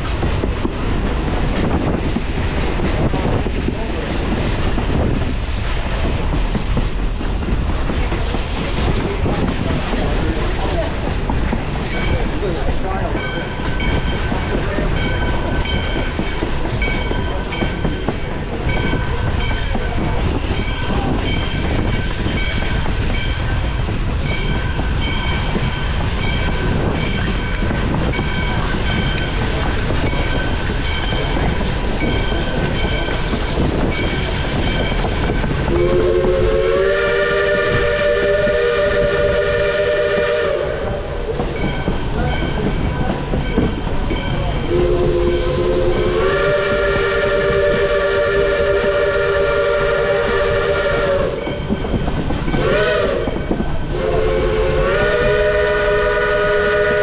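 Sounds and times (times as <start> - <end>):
train rumble and clickety-clack: 0.0 - 57.0
train bell ringing: 11.9 - 36.8, 41.5 - 46.3, 49.2 - 53.8
steam whistle blast: 35.7 - 41.0, 44.7 - 51.5, 52.6 - 57.0.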